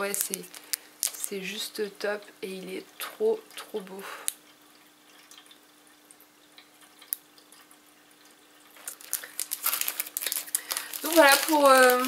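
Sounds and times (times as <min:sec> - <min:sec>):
plastic packaging ticking: 0:00.0 - 0:01.5, 0:08.8 - 0:12.0
faint steady hum: 0:00.0 - 0:12.0.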